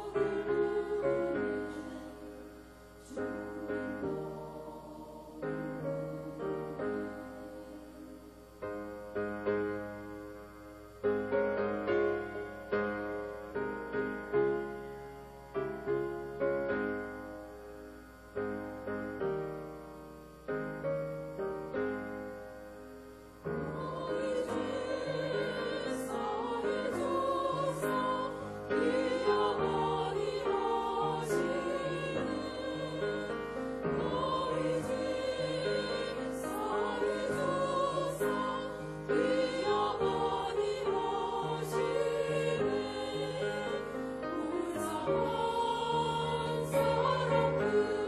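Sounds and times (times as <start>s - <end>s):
women's choir singing a hymn: 0.0s - 10.4s, 11.0s - 14.9s, 23.4s - 48.0s.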